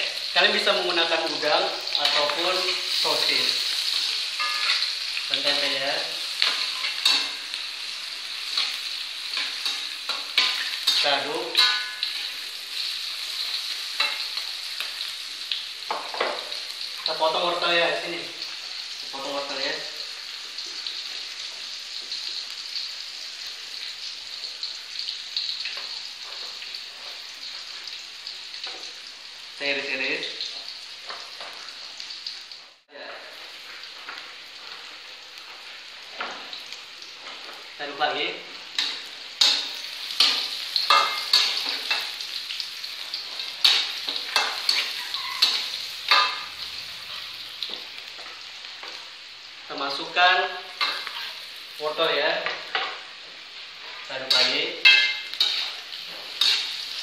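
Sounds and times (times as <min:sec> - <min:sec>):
food frying in oil: 0:00.0 - 0:57.0
spatula scraping wok: 0:43.0 - 0:48.4, 0:50.7 - 0:51.6, 0:53.8 - 0:57.0.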